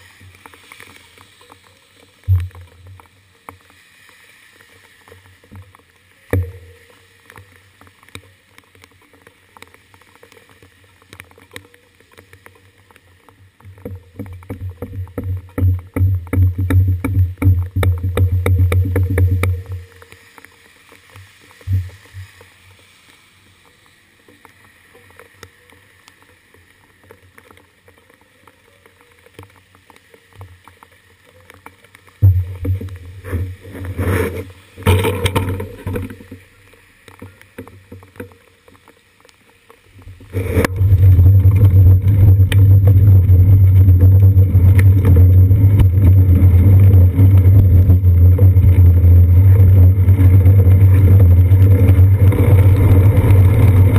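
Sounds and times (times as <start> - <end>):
wind and road vibration rumble: 13.5 - 19.9, 39.8 - 53.9
knocks and rumbles: 13.7 - 19.8, 32.2 - 33.6, 40.6 - 53.9.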